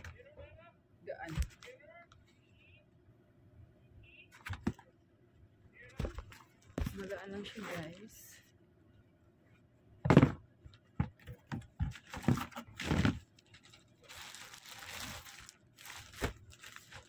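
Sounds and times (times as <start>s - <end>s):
plastic bags crinkling: 12.0s - 17.0s.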